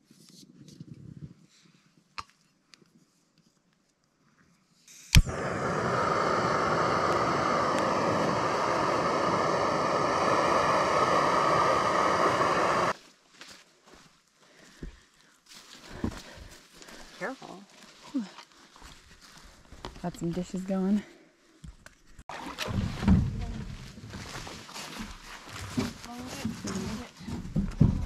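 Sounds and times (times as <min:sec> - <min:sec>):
gas burner hissing: 0:04.9 - 0:13.0
gas stove lighting pop: 0:05.1 - 0:05.4.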